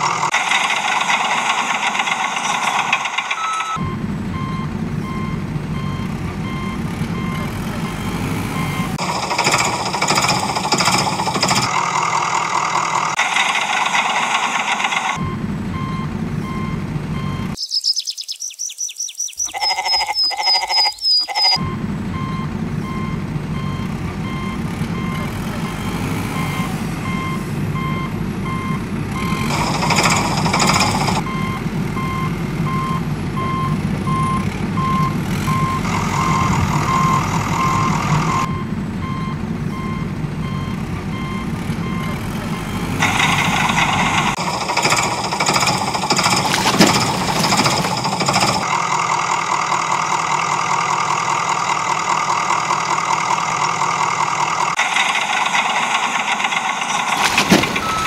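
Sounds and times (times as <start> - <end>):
truck reversing alarm beeping: 0.0 - 58.0
quick high chirps: 17.6 - 21.6.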